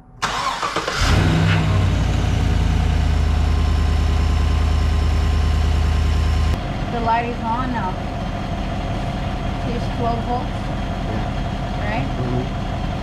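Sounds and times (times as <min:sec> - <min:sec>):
engine cranking and starting: 0:00.2 - 0:02.4
engine idling: 0:00.2 - 0:13.0.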